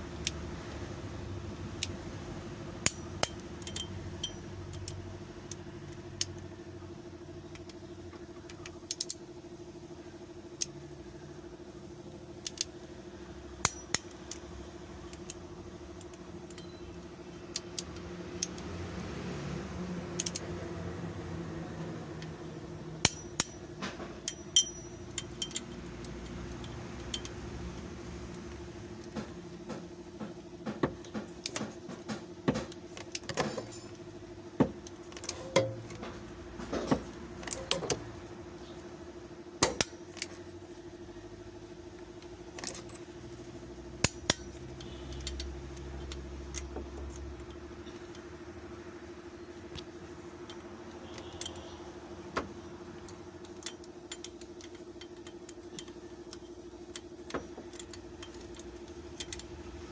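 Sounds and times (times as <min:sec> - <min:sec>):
steady low hum: 0:00.0 - 0:59.9
wrench clicking on bolts: 0:02.8 - 0:06.4, 0:07.5 - 0:09.2, 0:12.4 - 0:12.8, 0:13.5 - 0:18.7, 0:20.1 - 0:20.6, 0:23.0 - 0:34.0, 0:34.6 - 0:36.1, 0:36.7 - 0:38.1, 0:39.6 - 0:40.4, 0:42.0 - 0:48.4, 0:49.7 - 0:59.9.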